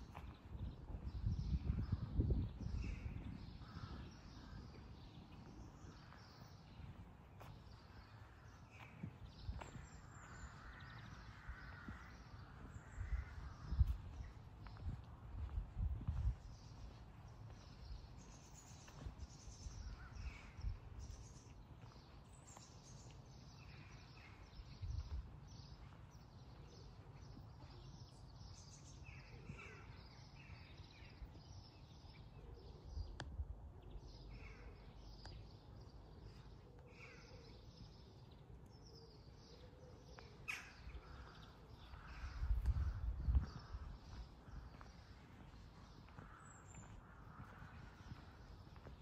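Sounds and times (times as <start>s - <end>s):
soft low thumps: 12.7s - 18.0s
birds chirping and calling: 36.6s - 49.0s.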